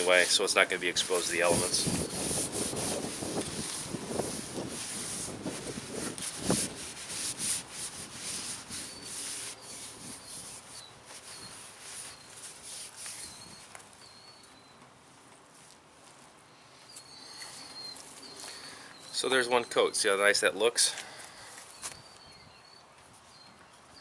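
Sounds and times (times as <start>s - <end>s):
rag wiping wood: 0.0s - 13.3s.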